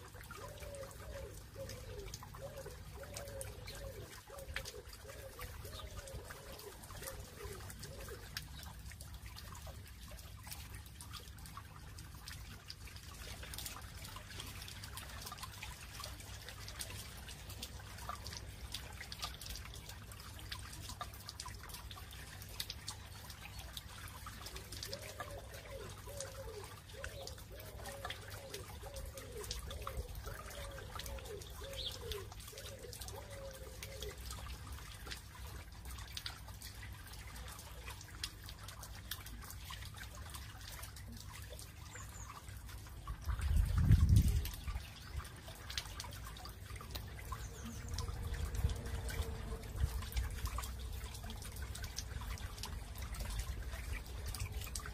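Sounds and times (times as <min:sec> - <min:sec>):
fountain water trickling: 0:00.0 - 0:54.9.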